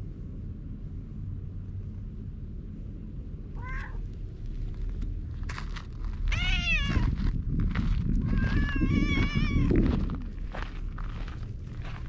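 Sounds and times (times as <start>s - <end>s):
steady low rumble: 0.0s - 12.0s
cat meowing: 3.6s - 4.0s, 6.3s - 7.1s, 8.2s - 9.8s.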